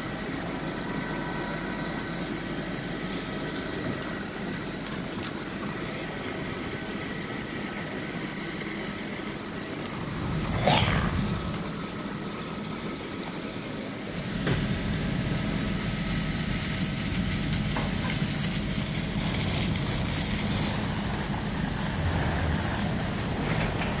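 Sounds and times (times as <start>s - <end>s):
fire engine pump running: 11.2s - 24.0s.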